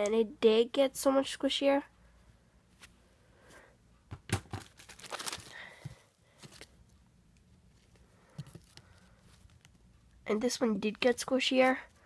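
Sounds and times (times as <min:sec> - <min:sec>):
plastic bags crinkling: 0:04.5 - 0:06.8.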